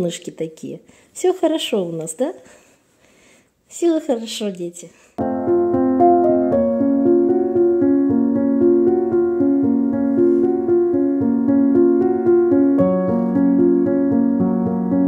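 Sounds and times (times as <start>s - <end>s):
gentle keyboard melody: 5.2s - 15.0s.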